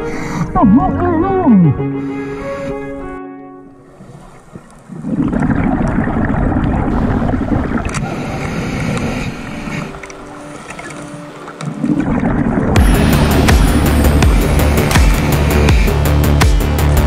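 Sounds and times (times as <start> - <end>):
underwater exhaust bubbles gurgling: 4.0 - 17.0.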